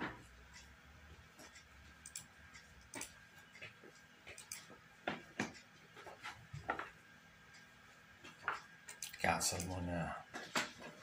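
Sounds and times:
computer mouse clicking: 1.5 - 4.7.

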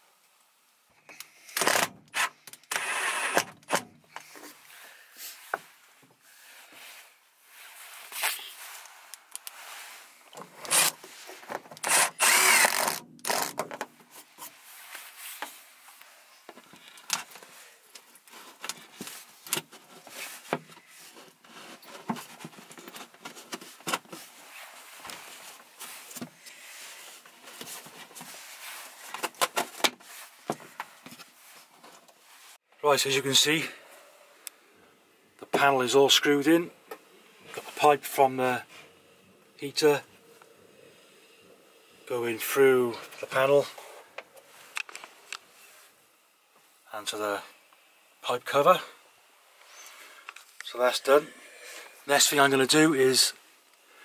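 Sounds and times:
power drill driving screws: 1.6 - 3.8, 10.6 - 11.0, 11.8 - 13.6.

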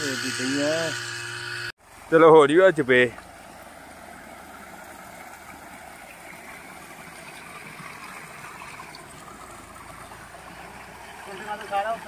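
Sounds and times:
water gushing into tank: 3.2 - 12.0.

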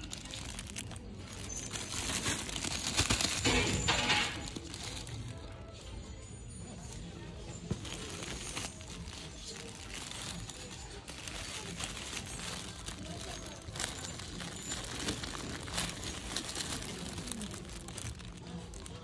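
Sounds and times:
toys crinkling and clicking: 0.0 - 6.1, 7.6 - 19.0
faint voices: 0.0 - 19.0.

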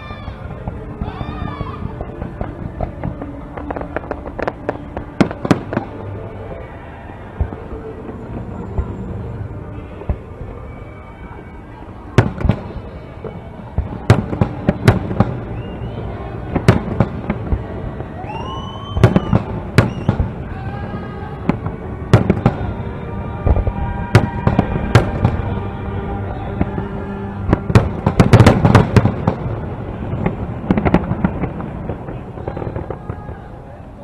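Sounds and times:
steady low rumble: 0.0 - 34.0
distant fireworks booms: 0.4 - 6.0, 12.2 - 15.8, 16.4 - 20.5, 21.4 - 22.8, 23.4 - 25.9, 26.5 - 33.6.

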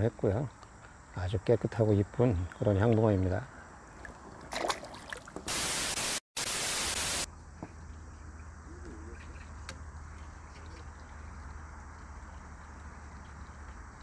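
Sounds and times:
loud static-like hiss: 5.5 - 7.3.

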